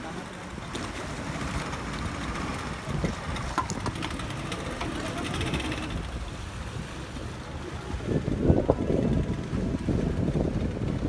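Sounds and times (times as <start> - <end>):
outboard motors rumbling: 0.0 - 11.0.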